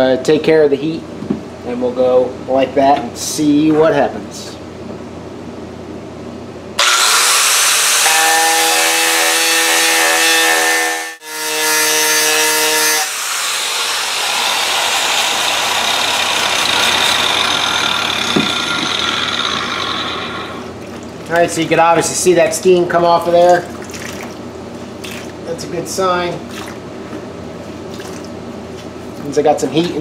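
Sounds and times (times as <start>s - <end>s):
angle grinder whining on steel: 6.8s - 20.7s.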